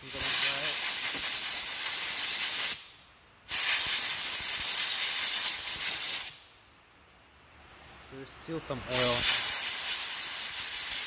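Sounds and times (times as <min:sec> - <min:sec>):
compressed air hissing: 0:00.0 - 0:06.6, 0:08.9 - 0:11.0.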